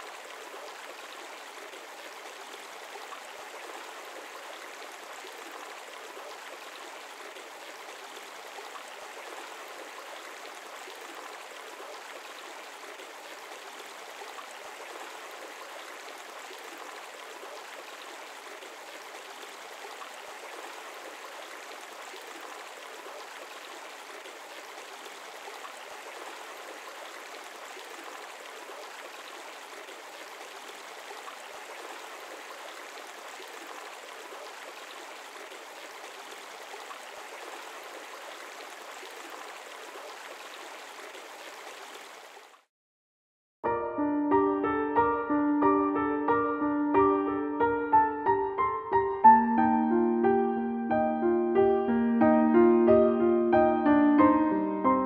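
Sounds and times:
stream water babbling: 0:00.0 - 0:42.7.

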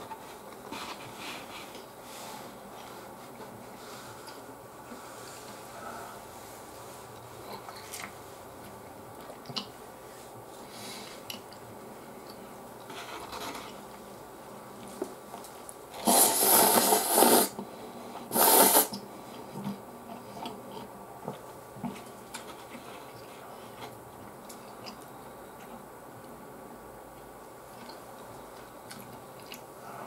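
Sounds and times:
soft chewing: 0:06.9 - 0:10.3, 0:11.0 - 0:15.8, 0:18.9 - 0:26.4, 0:27.1 - 0:30.0
loud noodle slurps: 0:16.0 - 0:17.6, 0:18.3 - 0:19.0.

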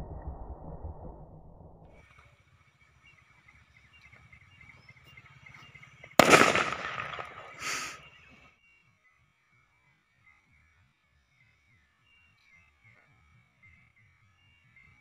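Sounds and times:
firecracker bang: 0:06.2 - 0:08.0.

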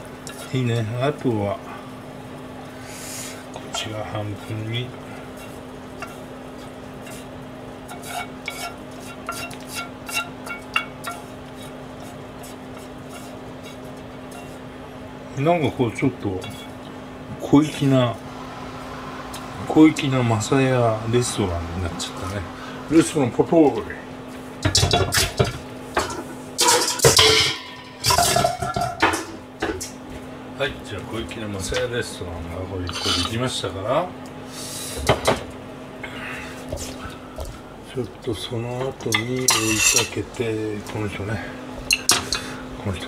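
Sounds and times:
steady low hum: 0:00.0 - 0:43.0
utensil scraping a frying pan: 0:05.0 - 0:14.8, 0:32.8 - 0:33.4, 0:39.5 - 0:40.2
utensils clattering on pan: 0:07.9 - 0:11.8, 0:24.6 - 0:30.0, 0:39.1 - 0:40.2.

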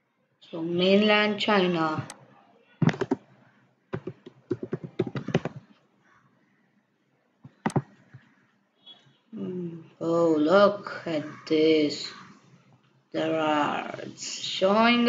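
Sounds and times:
computer keyboard typing: 0:02.8 - 0:03.2, 0:04.0 - 0:05.7, 0:07.5 - 0:08.3
sharp click: 0:07.5 - 0:07.9.

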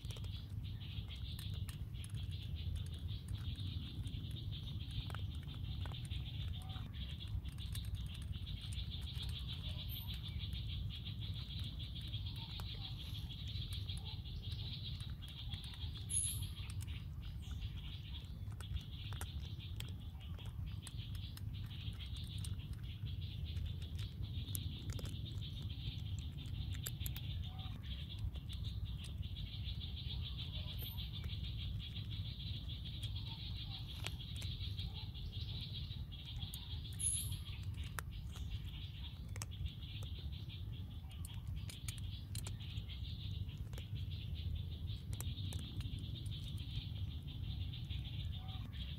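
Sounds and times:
small clicks and rustles: 0:00.0 - 0:29.2, 0:36.5 - 0:40.3.

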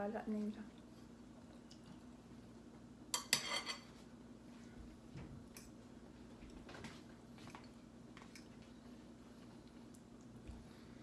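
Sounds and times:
cutlery clinking on plates: 0:03.2 - 0:04.0.

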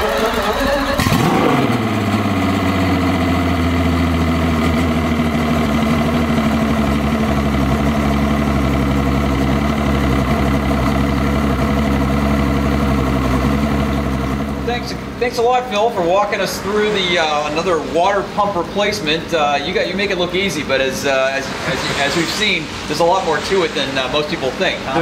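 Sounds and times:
outboard motor idling: 0:00.0 - 0:17.7.

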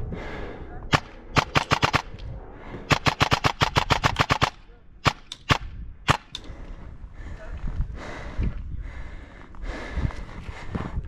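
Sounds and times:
airsoft rifle shots: 0:00.9 - 0:02.2, 0:02.9 - 0:06.4.

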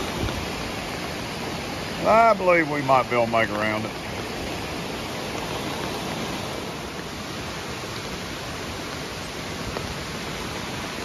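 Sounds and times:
water rushing over rocks: 0:00.0 - 0:11.0.

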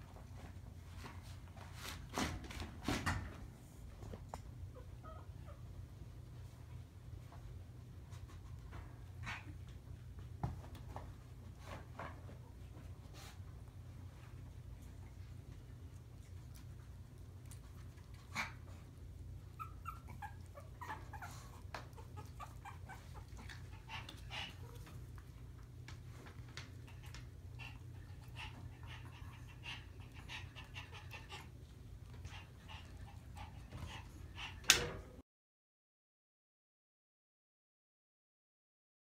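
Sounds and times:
puppies whimpering and yipping: 0:19.4 - 0:24.8.

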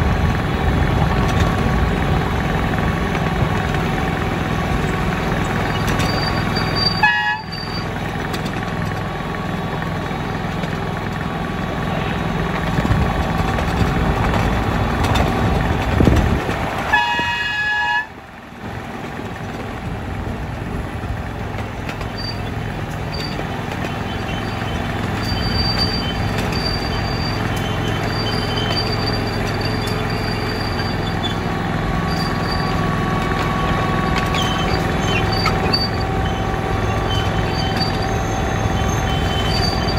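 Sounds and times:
miniature locomotive engine running: 0:00.0 - 0:39.9
train horn: 0:06.9 - 0:07.7, 0:16.8 - 0:18.2.

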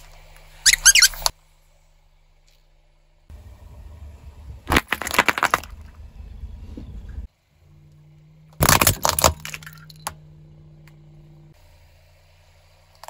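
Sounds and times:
low engine hum: 0:00.0 - 0:04.7, 0:05.5 - 0:13.0
plastic cups cracking and popping: 0:08.6 - 0:10.2.

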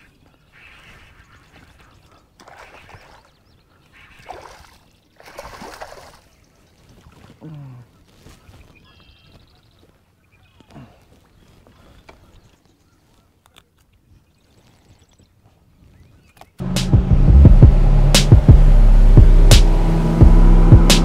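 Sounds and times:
fish splashing at surface: 0:04.2 - 0:06.3
low falling-pitch sound: 0:16.6 - 0:21.0.

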